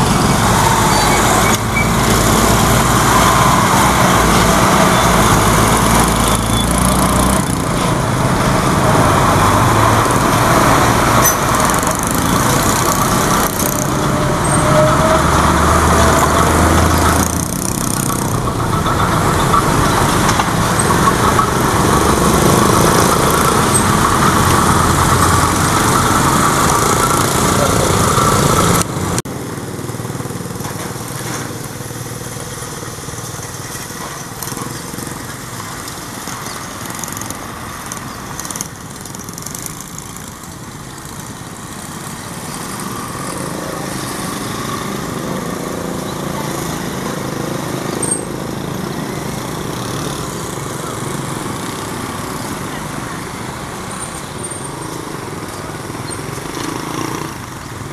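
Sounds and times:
motorcycle engine running: 0.0 - 36.6
diesel locomotive running: 0.0 - 36.8.

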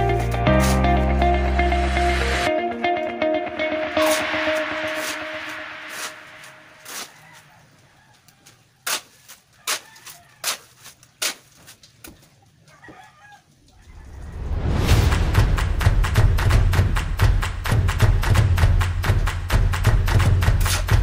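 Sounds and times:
background music: 0.0 - 7.0, 14.3 - 21.0
rooster crowing faintly: 6.8 - 11.0, 12.6 - 14.9
shovel knocking in gravel: 8.9 - 11.8.

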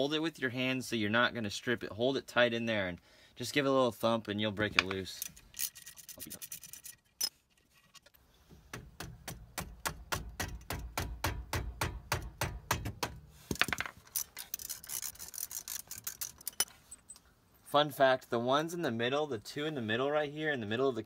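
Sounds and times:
ratchet clicking: 14.1 - 16.7.

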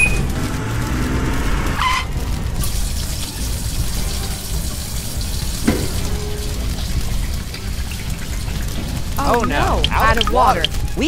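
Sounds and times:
water spraying from hose: 0.0 - 11.0.

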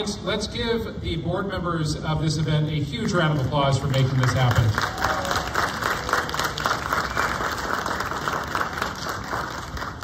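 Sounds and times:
audience clapping: 3.0 - 10.0.

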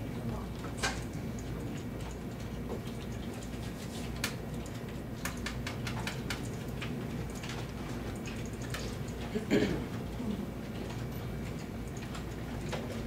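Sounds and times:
low room hum: 0.0 - 13.0
keyboard and mouse clicks: 4.1 - 9.2.

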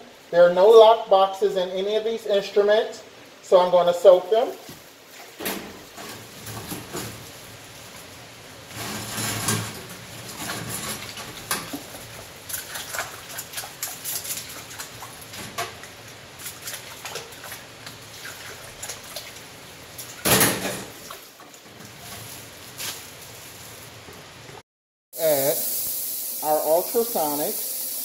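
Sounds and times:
water sloshing in sink: 8.7 - 23.0.

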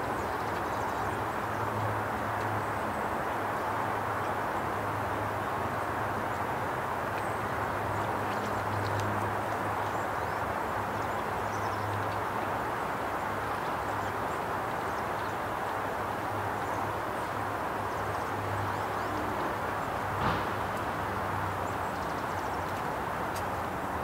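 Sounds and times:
faint high ticks: 8.3 - 10.0
sharp knock: 20.2 - 20.8.

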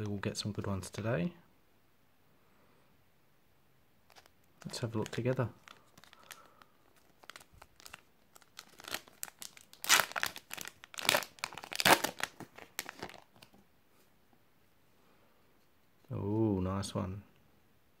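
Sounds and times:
foil packet crinkling and tearing: 4.1 - 13.5.

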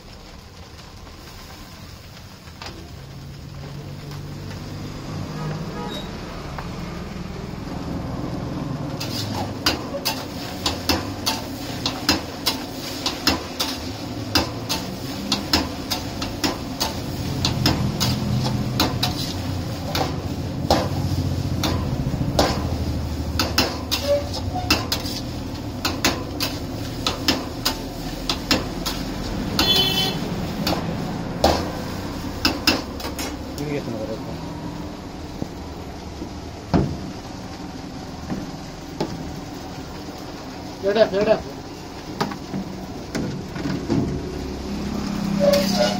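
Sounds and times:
gas burner rumble: 0.0 - 45.9
metal spatula scraping wok: 8.9 - 33.5, 44.8 - 45.9.

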